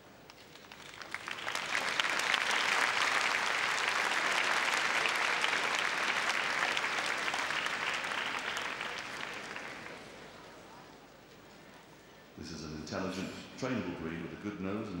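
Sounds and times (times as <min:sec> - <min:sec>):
large crowd applauding: 0:00.4 - 0:10.4.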